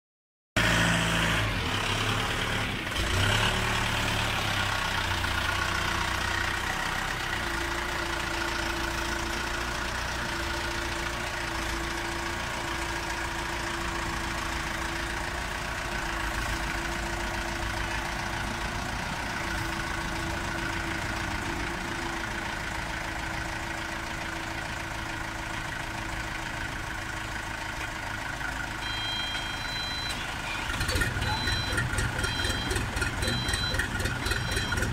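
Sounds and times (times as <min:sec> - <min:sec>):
forklift engine running: 0:00.6 - 0:34.9
high repeating beep: 0:28.8 - 0:34.9.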